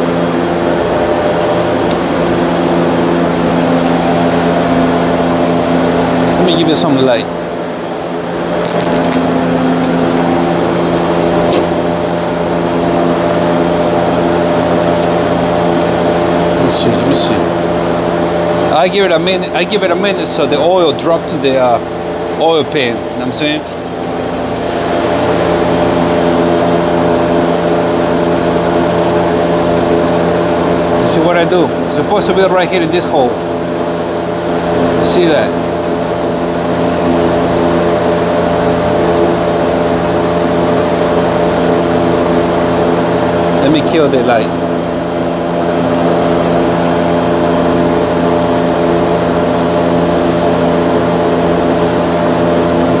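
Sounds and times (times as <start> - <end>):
machine running steady drone: 0.0 - 53.0.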